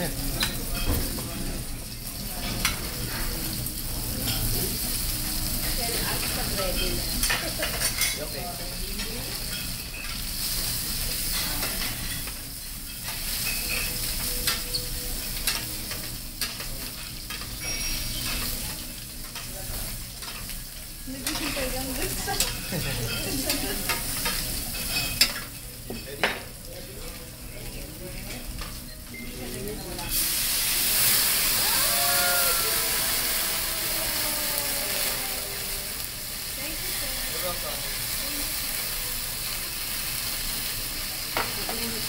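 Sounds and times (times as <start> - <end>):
meat sizzling in a frying pan: 0.0 - 42.0
metal tongs clinking and scraping: 6.4 - 8.4, 11.2 - 26.2.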